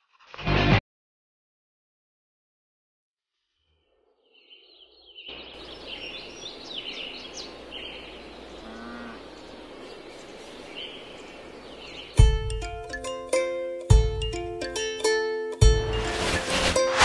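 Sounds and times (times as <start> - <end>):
birds chirping: 3.4 - 13.1
steady background hiss: 5.3 - 13.5.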